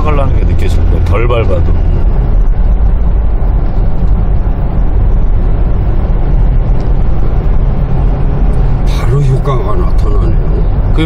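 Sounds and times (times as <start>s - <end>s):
car engine and tyre rumble: 0.0s - 11.0s.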